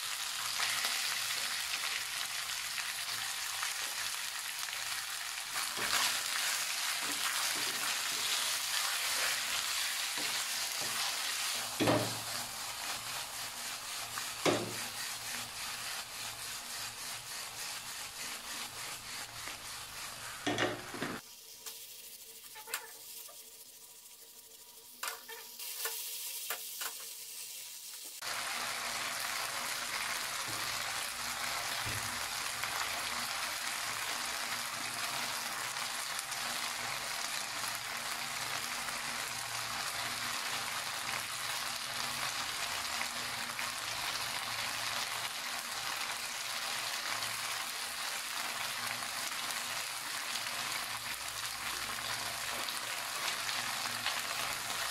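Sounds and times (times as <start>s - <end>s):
food sizzling in a wok: 0.0s - 54.9s.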